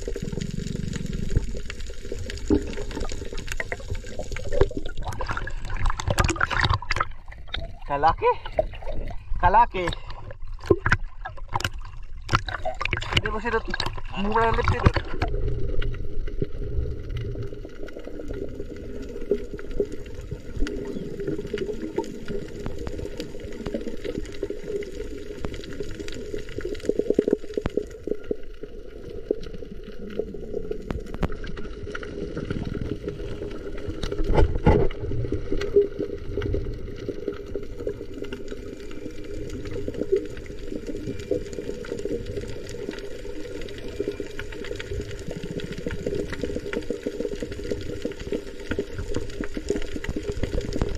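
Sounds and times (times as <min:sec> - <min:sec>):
sharp underwater clicks: 0:00.0 - 0:09.2, 0:09.8 - 0:16.5
underwater water rumble: 0:00.0 - 0:50.9.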